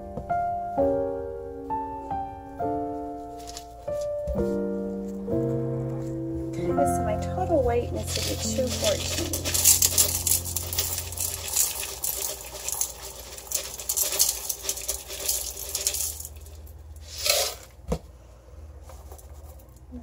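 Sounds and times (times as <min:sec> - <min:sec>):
pellets pattering into glass: 0:08.0 - 0:17.5.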